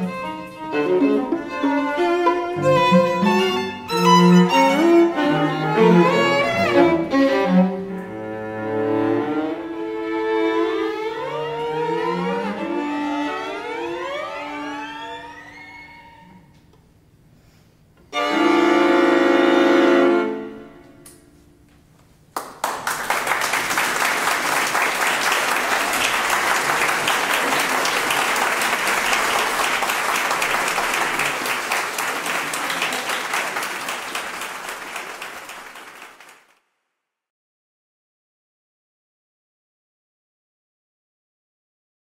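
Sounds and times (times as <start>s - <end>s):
string quartet chord: 0.0s - 15.8s, 18.1s - 21.2s
audience applause: 22.4s - 36.6s.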